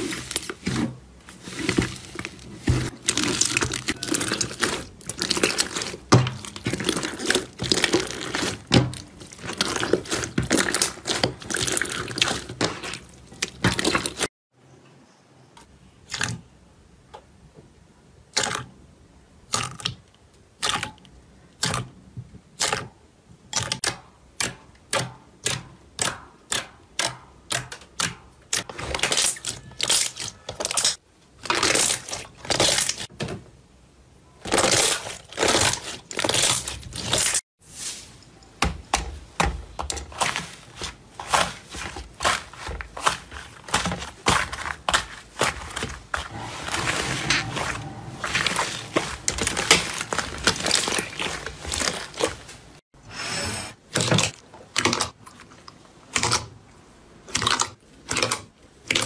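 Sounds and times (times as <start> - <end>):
slime squelching: 0.0 - 14.3, 23.6 - 33.1, 34.4 - 37.4, 38.9 - 52.8
fluffy slime crackling: 1.3 - 14.3, 39.8 - 52.8.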